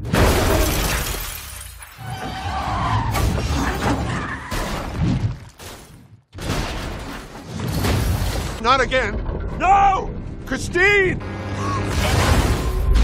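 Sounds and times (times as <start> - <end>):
glass shattering: 0.1 - 2.1.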